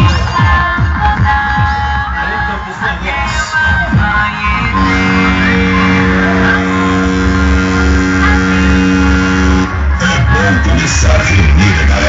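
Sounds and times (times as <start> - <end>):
loud music with pounding bass beat: 0.0 - 12.0
held synth chord: 4.2 - 10.5.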